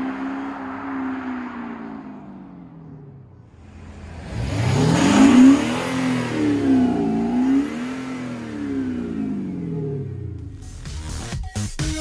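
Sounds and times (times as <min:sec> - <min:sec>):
car accelerating hard past: 0:00.0 - 0:09.4.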